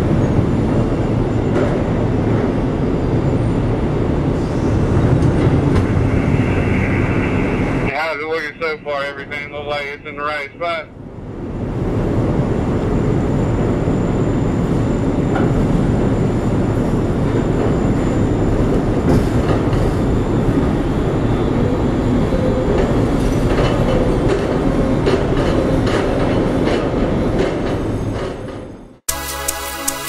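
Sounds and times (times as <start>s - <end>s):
crane mechanical rumble: 0.0s - 10.2s.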